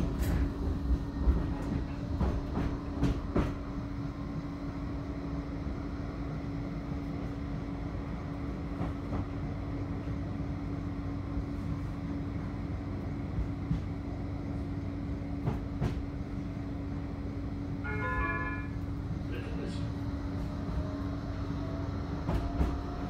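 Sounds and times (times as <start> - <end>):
tram wheels rumbling: 0.0 - 23.0
sharp clicks from rails: 15.4 - 16.2.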